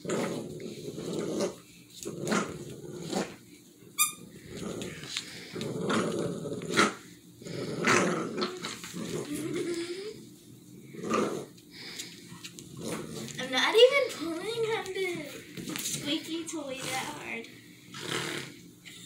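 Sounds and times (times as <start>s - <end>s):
dog growling: 0.0s - 3.4s, 4.2s - 12.0s, 12.6s - 13.7s, 16.7s - 18.7s.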